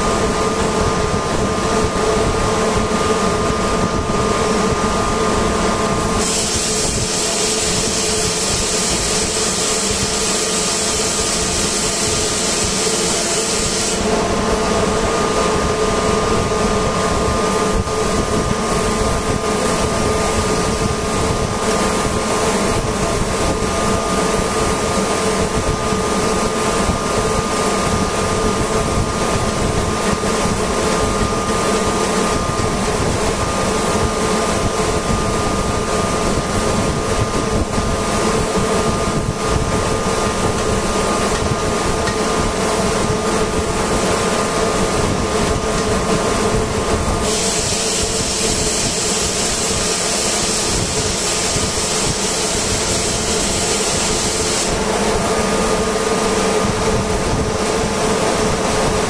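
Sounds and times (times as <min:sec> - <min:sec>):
machinery humming: 0:00.0 - 0:59.0
loud hiss of escaping air: 0:06.1 - 0:14.1, 0:47.2 - 0:54.9.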